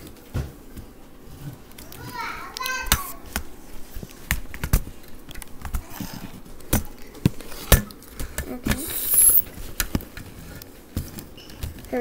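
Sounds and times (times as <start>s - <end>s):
short rush of hiss: 8.7s - 9.5s.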